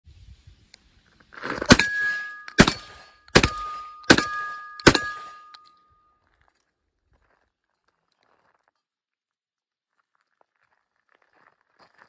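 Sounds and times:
shotgun shots: 1.7 - 5.5
steel targets ringing: 1.7 - 6.1.

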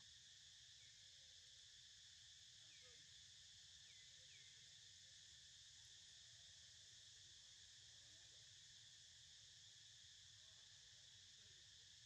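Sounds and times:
faint insect chorus: 0.0 - 12.0.

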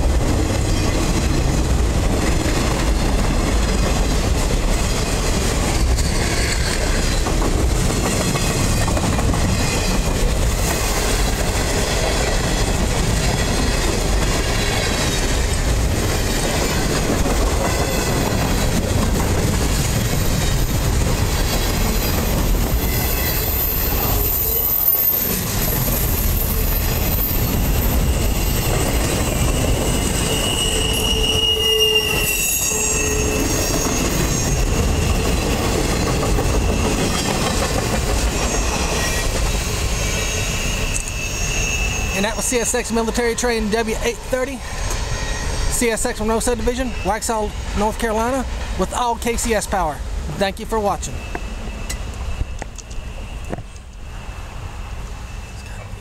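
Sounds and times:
train wheels rumbling on track: 0.0 - 56.0
high-pitched wheel squeal: 21.6 - 35.6, 38.4 - 42.4, 44.8 - 45.7, 51.0 - 56.0.

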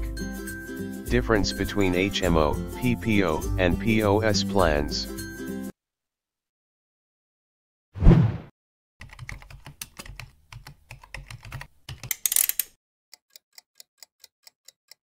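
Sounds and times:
keyboard typing clicks: 9.0 - 12.3.

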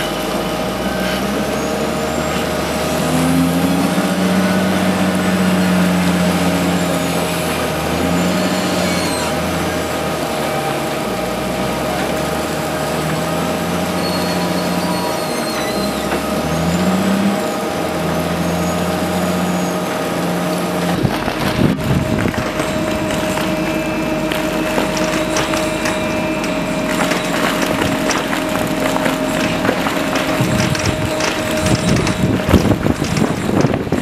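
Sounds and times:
diesel wheel loader engine: 0.0 - 34.0
steady high whine: 0.0 - 34.0.

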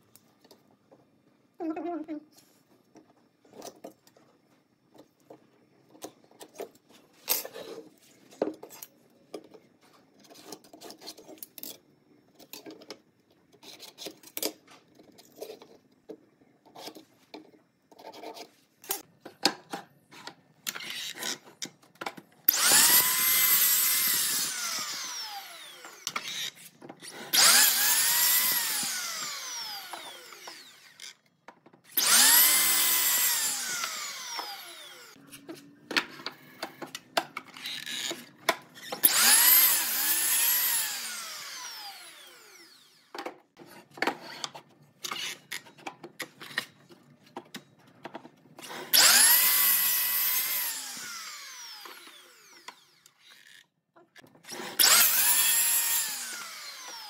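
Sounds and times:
miter saw motor whine: 22.5 - 26.1, 32.0 - 35.2, 39.0 - 43.1, 54.8 - 57.0.

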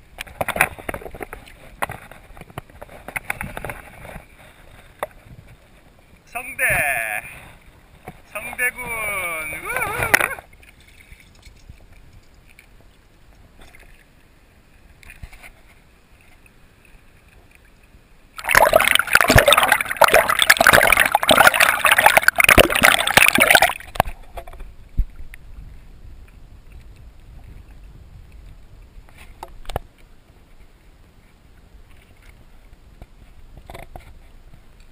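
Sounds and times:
water lapping: 0.3 - 25.9
water gurgling underwater: 18.4 - 24.2.

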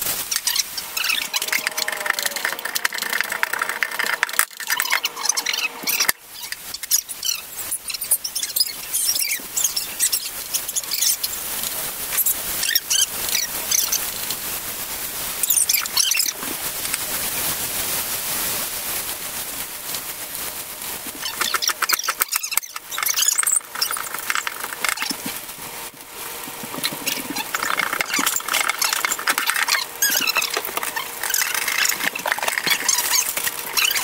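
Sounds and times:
short high squeaks: 0.3 - 11.2, 21.1 - 25.2, 26.7 - 34.0.

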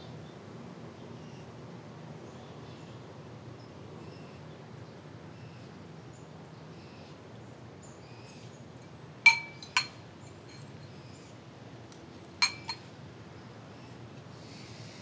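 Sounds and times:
spoon clinking on ceramic bowl: 9.3 - 10.7, 12.4 - 12.8.

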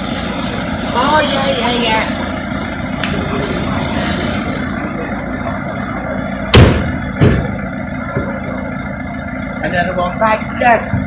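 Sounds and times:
car engine idling: 0.0 - 11.0
loud thumps: 6.4 - 7.6.

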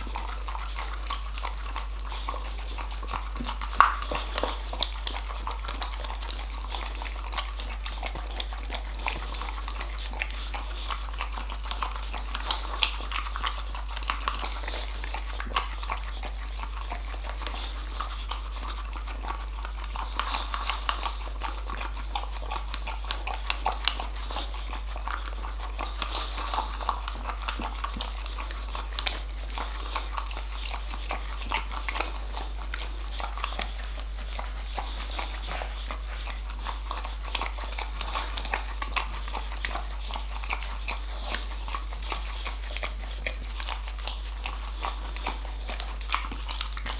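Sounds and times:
dog licking and slurping: 0.0 - 46.9
tongue clicking against plastic: 2.8 - 17.6.

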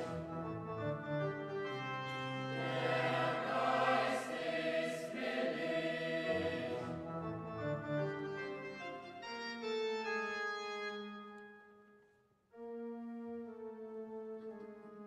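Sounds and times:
choir singing: 2.5 - 7.0.

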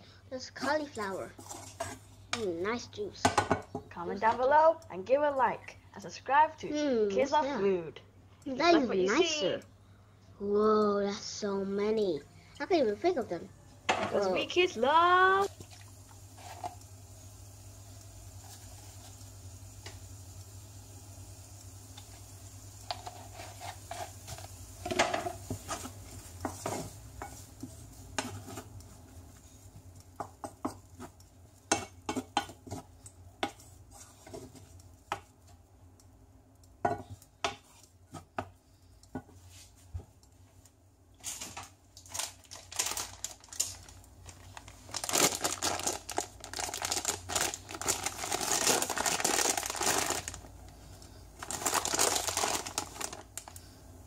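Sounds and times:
spatula scraping frying pan: 1.3 - 2.2, 22.8 - 28.7, 30.2 - 35.2
plastic packet crinkling: 42.0 - 50.5, 51.4 - 53.6.

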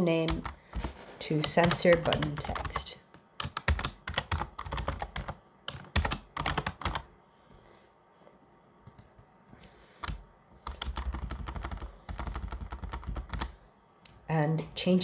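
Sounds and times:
keyboard typing: 0.2 - 7.1, 10.0 - 13.6.

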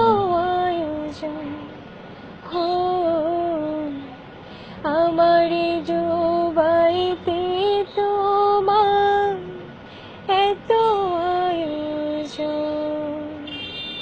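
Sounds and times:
woman singing long notes: 0.0 - 1.7.

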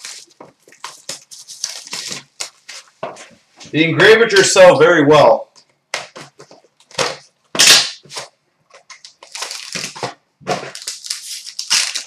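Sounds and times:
cardboard ripping and crinkling: 0.0 - 2.8, 7.6 - 12.0.

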